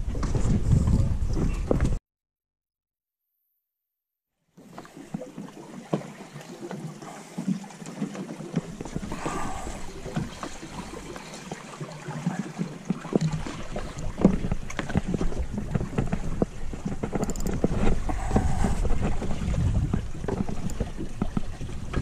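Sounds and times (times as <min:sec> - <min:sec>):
wind buffeting microphone: 0:00.0 - 0:02.0, 0:14.0 - 0:22.0
water slapping boat hull: 0:04.6 - 0:22.0
sharp clicks and knocks: 0:14.2 - 0:18.5.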